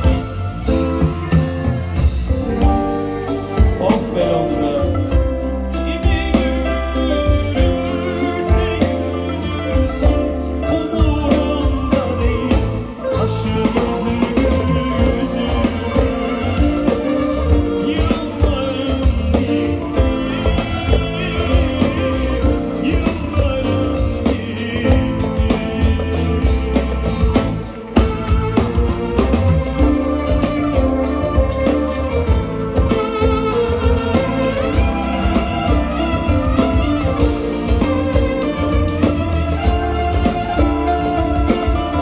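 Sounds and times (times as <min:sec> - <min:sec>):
drum kit beat: 0:00.0 - 0:42.0
guitar: 0:00.0 - 0:42.0
man singing: 0:03.5 - 0:28.0, 0:29.8 - 0:42.0
clarinet: 0:27.2 - 0:42.0.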